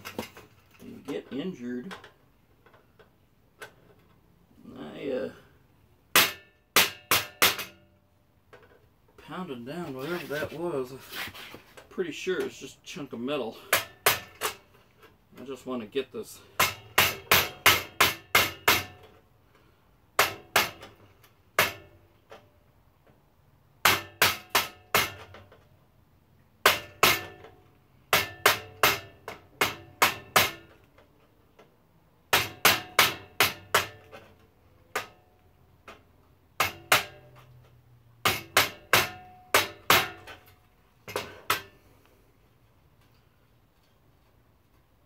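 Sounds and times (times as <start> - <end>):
hammer striking steel chisel: 6.2 - 7.8, 13.7 - 14.6, 28.1 - 30.7, 32.3 - 34.1, 36.6 - 37.4, 38.2 - 40.4.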